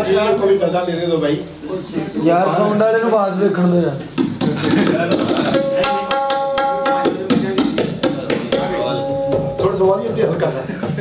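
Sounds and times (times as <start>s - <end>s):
fast tabla drumming: 4.1s - 11.0s
steady held note: 5.5s - 7.3s, 8.5s - 10.2s.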